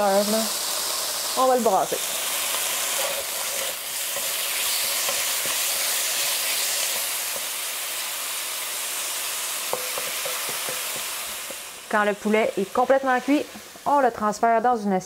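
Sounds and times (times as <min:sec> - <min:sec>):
chicken sizzling in oil: 0:00.0 - 0:14.9
spatula tapping wok: 0:02.5 - 0:06.0, 0:06.6 - 0:07.7, 0:09.6 - 0:11.7.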